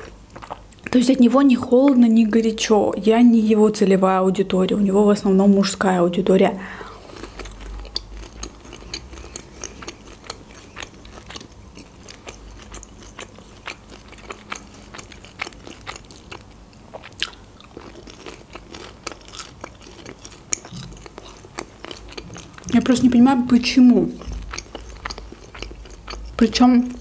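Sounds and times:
person chewing food: 0.0 - 0.9, 6.7 - 22.9, 23.9 - 27.0.

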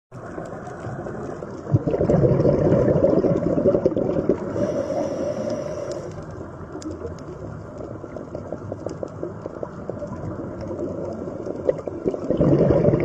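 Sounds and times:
underwater rumbling and gurgling: 0.1 - 13.0
faint clicks: 4.7 - 12.2.

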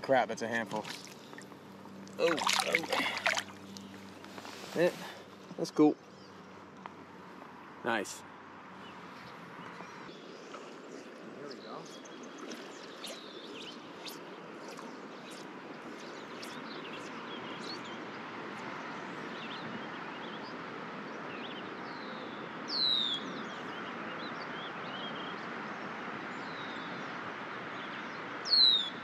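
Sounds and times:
songbirds chirping: 0.0 - 29.0
river water flowing over stones: 0.4 - 5.4.

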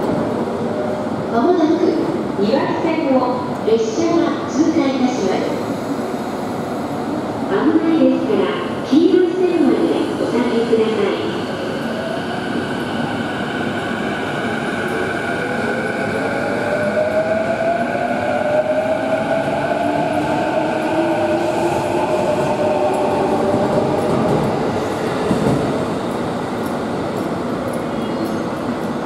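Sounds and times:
train wheels rumbling on rails: 12.0 - 29.0.

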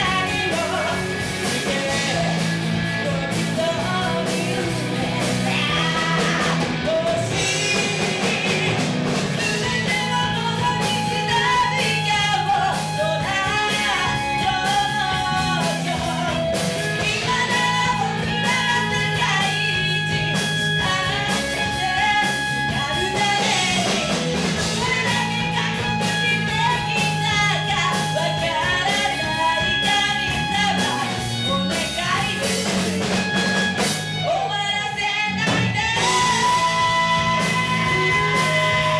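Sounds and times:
live rock band playing: 0.0 - 38.9
woman singing: 0.0 - 38.9.

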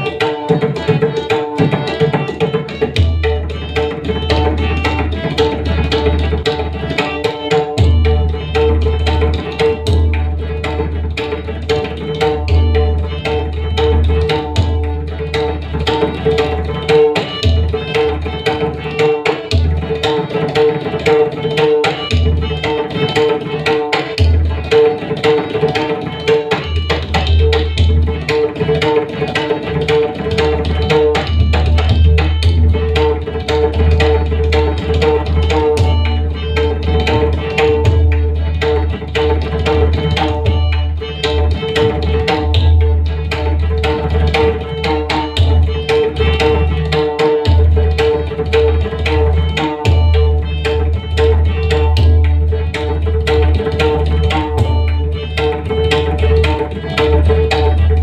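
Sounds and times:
harmonium melody: 0.0 - 58.0.

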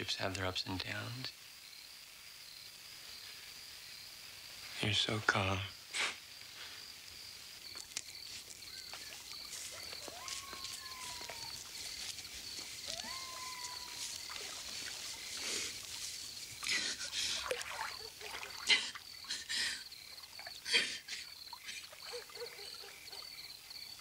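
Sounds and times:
crickets chirping: 0.0 - 24.0
water splashing in a pool: 12.7 - 19.5, 20.1 - 23.2.

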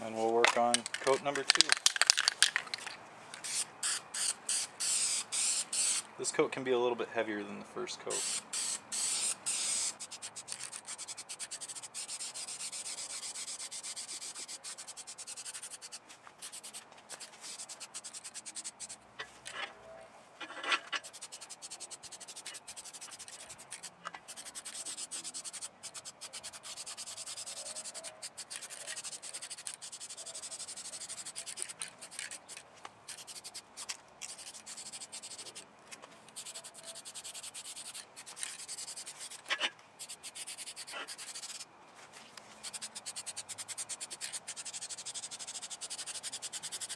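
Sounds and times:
spray paint can hissing: 3.4 - 6.1, 8.1 - 19.0, 21.0 - 35.6, 36.3 - 41.7, 42.6 - 46.9.

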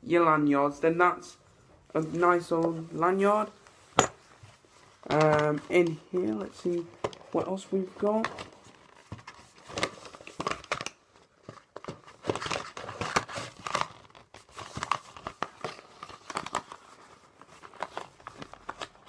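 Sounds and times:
paper packaging crinkling: 4.8 - 19.0.

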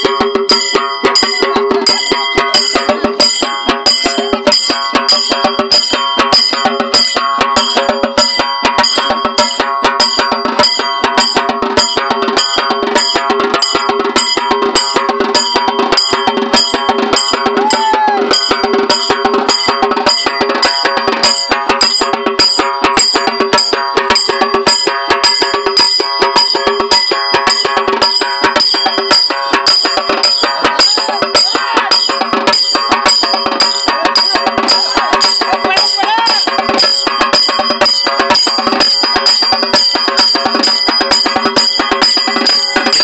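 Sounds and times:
steady high tone: 0.0 - 7.2
fast even drumming: 0.0 - 43.0.

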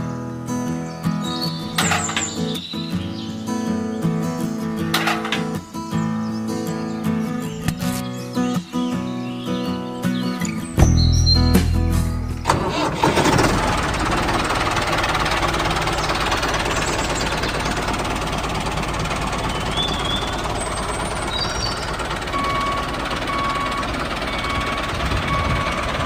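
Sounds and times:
bird-like chirps: 0.0 - 12.4, 15.4 - 23.7
small engine knocking steadily: 13.2 - 26.0
repeating reversing alarm beep: 22.3 - 26.0.

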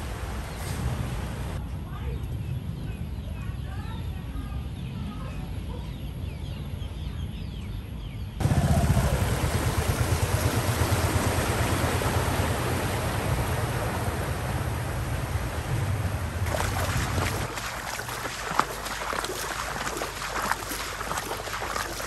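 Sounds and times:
water splashing around car tyres: 8.4 - 22.0.

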